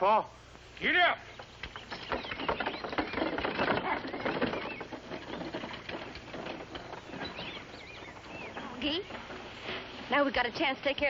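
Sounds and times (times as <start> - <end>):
bird chirps: 1.2 - 9.7
hoof clatter: 1.4 - 11.0
wagon rattling: 1.5 - 11.0.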